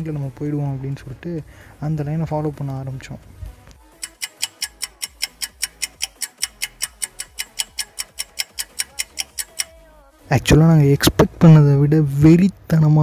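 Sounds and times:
fast clock-like ticking: 3.9s - 9.8s.

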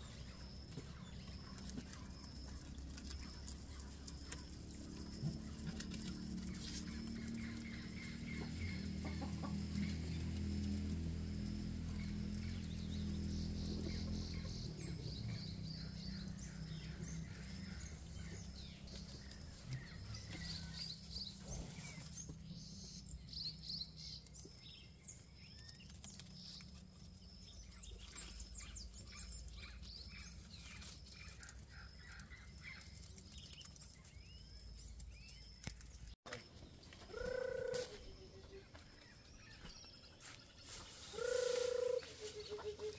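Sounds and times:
chickens clucking: 0.0s - 10.8s, 37.0s - 38.8s, 39.6s - 42.9s
small birds chirping: 0.0s - 42.9s.

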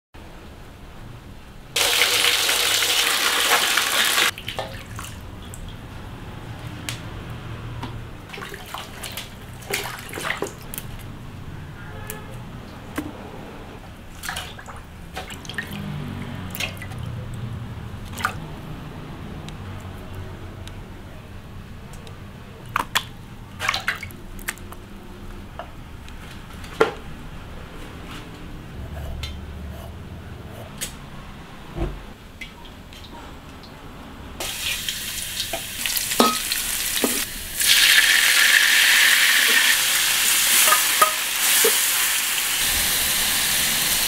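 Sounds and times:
water gushing: 1.8s - 5.2s, 34.4s - 44.0s
splashing greens in water: 8.3s - 10.9s, 22.8s - 24.7s.

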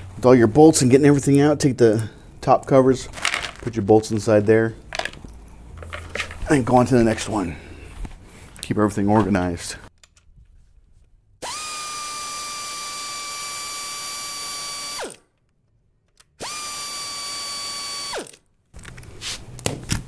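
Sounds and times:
clatters of handling: 3.0s - 6.7s
air ratchet whining: 11.4s - 15.2s, 16.4s - 18.4s.

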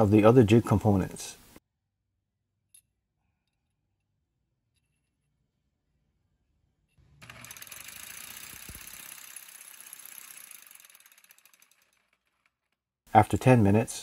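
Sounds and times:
reciprocating saw running: 7.0s - 12.8s.

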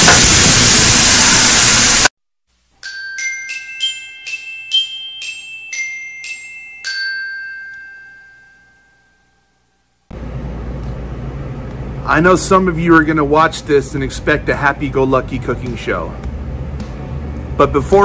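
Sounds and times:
glockenspiel-like chime tune: 2.8s - 9.8s.

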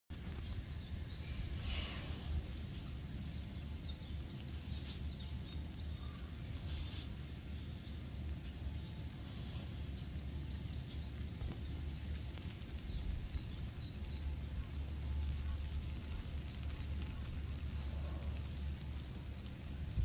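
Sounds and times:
small birds chirping: 0.1s - 20.0s
steady low rumble: 0.1s - 20.0s
brief rushing hiss: 1.2s - 3.0s.

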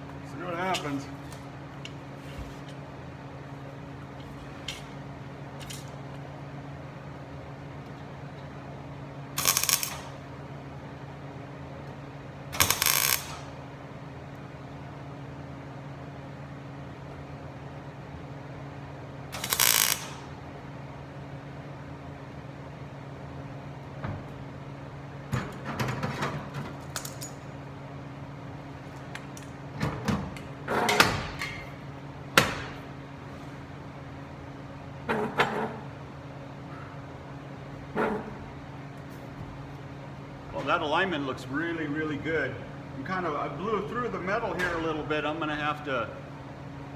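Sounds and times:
steady low hum: 0.0s - 46.9s
welder crackling bursts: 9.3s - 10.2s, 12.6s - 13.5s, 19.3s - 20.3s.

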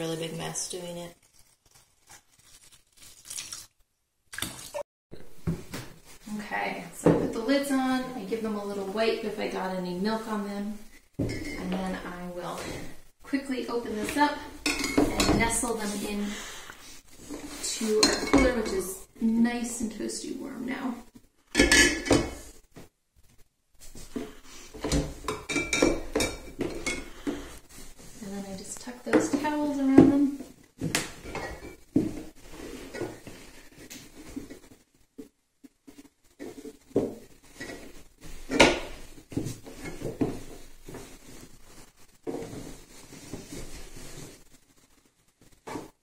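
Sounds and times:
glass jars clinking: 21.6s - 22.4s, 25.3s - 27.1s.

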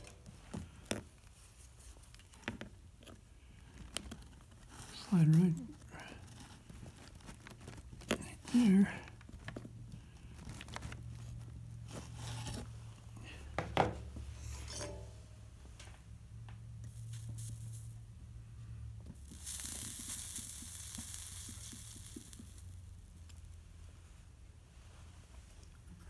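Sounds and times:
low steady hum: 0.0s - 26.0s
molten solder sizzling: 4.4s - 12.7s, 16.7s - 24.5s.

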